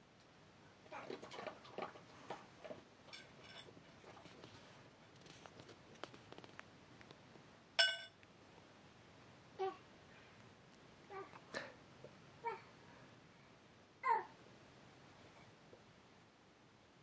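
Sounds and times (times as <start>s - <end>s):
metallic clang: 7.8s - 8.2s.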